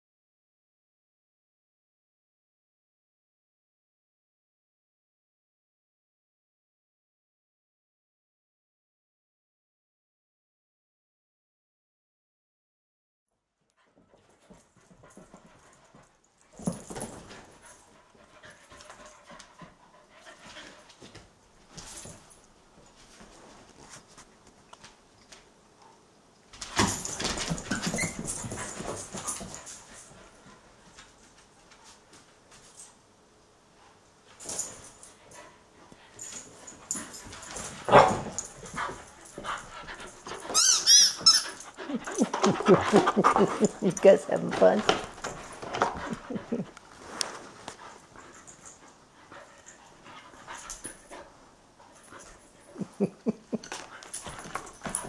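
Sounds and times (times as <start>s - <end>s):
dogs panting: 13.8s - 21.2s, 34.5s - 55.0s
dogs scuffling with clicks: 13.8s - 25.5s, 26.4s - 33.0s, 34.3s - 55.0s
dogs yipping: 40.3s - 43.8s.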